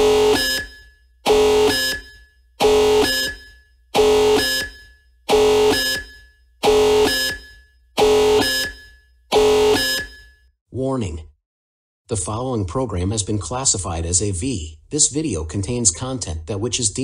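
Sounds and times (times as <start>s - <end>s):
harsh buzzing alarm tone: 0.0s - 10.4s.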